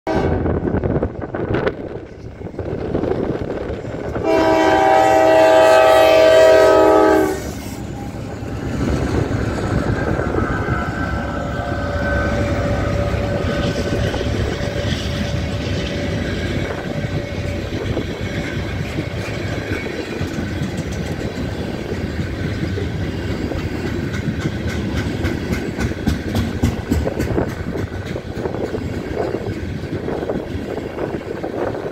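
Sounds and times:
locomotive air horn: 0.1s - 0.5s, 4.2s - 8.2s, 10.6s - 17.4s
wheels clicking over rail joints: 12.4s - 31.9s.

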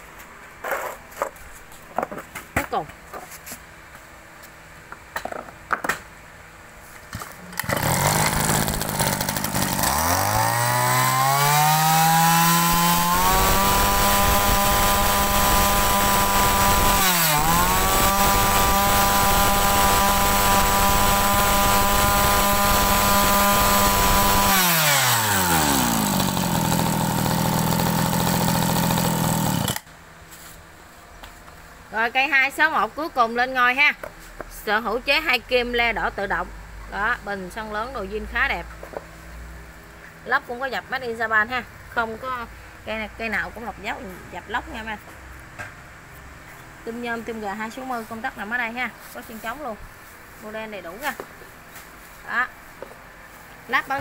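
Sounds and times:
brush cutter two-stroke engine: 7.5s - 29.9s.

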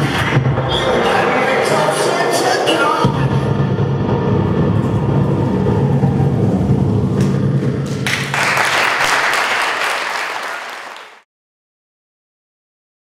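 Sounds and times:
low droning music: 3.1s - 8.1s
audience applause: 7.8s - 11.3s.

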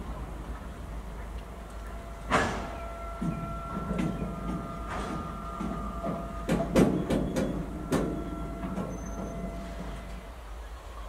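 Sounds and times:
freight train rumbling past: 0.0s - 11.0s
wagons clanking: 1.2s - 10.4s
high squeal: 2.0s - 10.3s.

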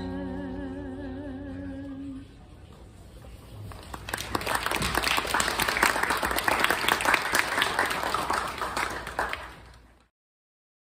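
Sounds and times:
audience applauding: 3.7s - 10.1s.

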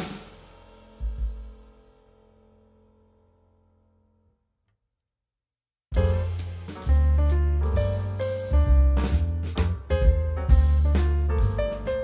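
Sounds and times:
instrumental music with strong bass: 0.0s - 2.0s, 5.9s - 12.0s.

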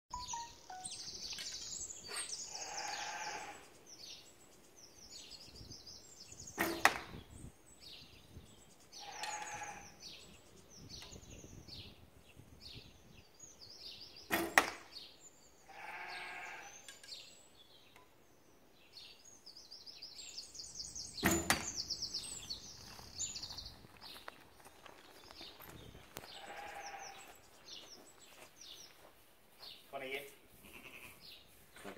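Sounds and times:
small birds chirping: 0.1s - 31.9s
sheep bleating: 2.5s - 3.6s, 9.0s - 9.9s, 15.7s - 16.7s, 26.3s - 27.3s, 30.6s - 31.2s
bow shot arrow thwack: 6.6s - 7.2s, 14.3s - 14.8s, 21.2s - 21.7s.

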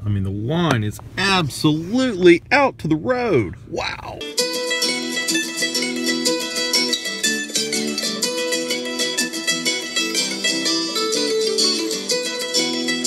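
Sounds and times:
fast plucked-string melody: 4.2s - 13.0s.

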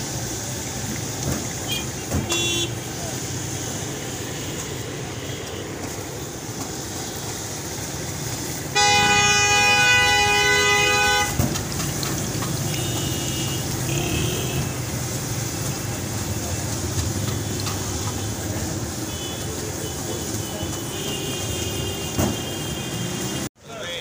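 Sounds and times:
vehicle horn blaring: 1.7s - 2.8s, 8.7s - 11.5s, 12.2s - 14.8s, 19.1s - 23.5s.

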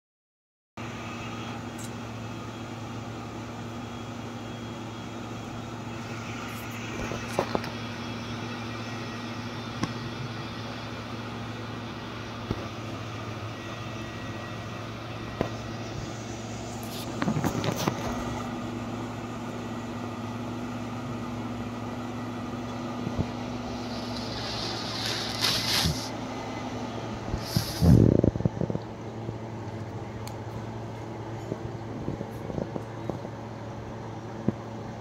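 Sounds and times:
low mechanical hum: 0.8s - 35.0s.

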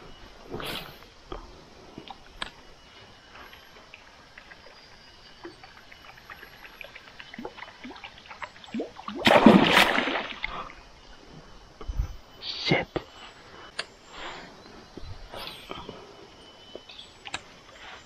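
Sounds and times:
fish splashing at water surface: 9.2s - 10.5s.

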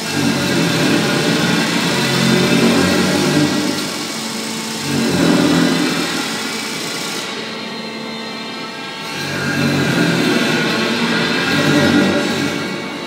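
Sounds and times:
disc grinder grinding metal: 0.0s - 7.2s.

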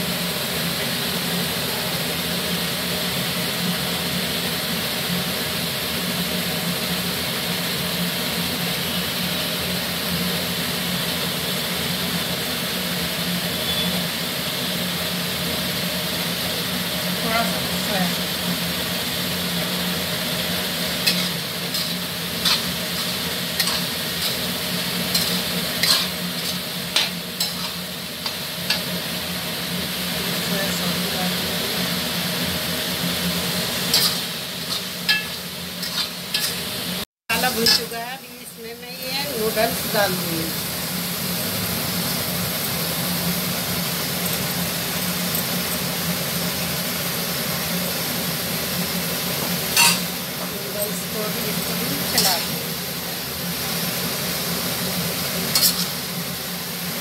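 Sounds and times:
food sizzling: 0.0s - 57.0s
machine running with hiss and hum: 0.0s - 57.0s
spatula scraping metal pan: 21.0s - 28.9s, 33.9s - 36.7s, 55.5s - 56.0s
steel clinks on pan: 33.9s - 36.6s, 49.8s - 50.1s.

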